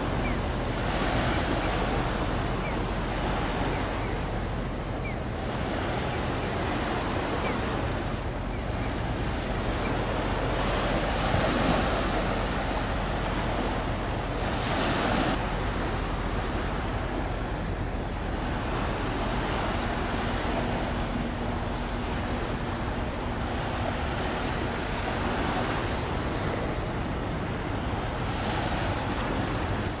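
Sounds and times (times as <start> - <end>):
sea water washing against shore: 0.0 - 30.0.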